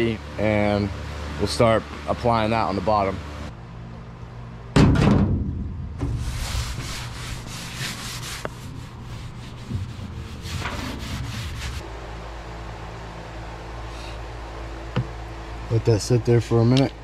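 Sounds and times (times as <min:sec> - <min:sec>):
low steady hum: 0:00.0 - 0:17.0
rag rubbing metal hull: 0:06.0 - 0:11.8.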